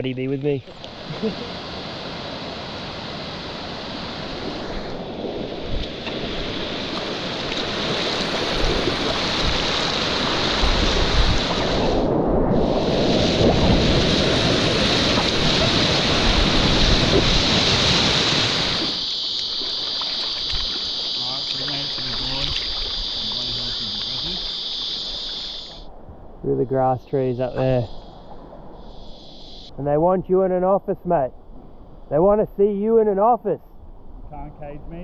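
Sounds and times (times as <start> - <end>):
whitewater rushing: 0.7 - 24.6
wind buffeting microphone: 0.8 - 19.0.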